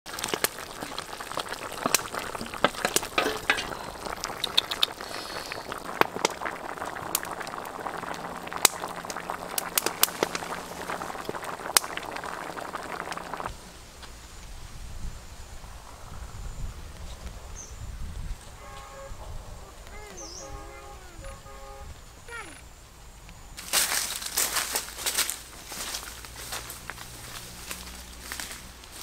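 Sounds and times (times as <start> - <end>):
broth boiling and popping: 0.0 - 19.2, 23.6 - 29.0
splashes in pot: 0.1 - 13.5.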